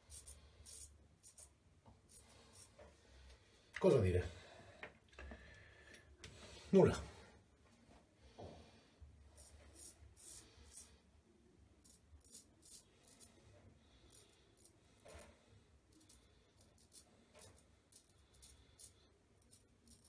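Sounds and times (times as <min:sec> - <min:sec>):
razor scraping stubble: 0:00.0 - 0:02.8, 0:11.8 - 0:13.4.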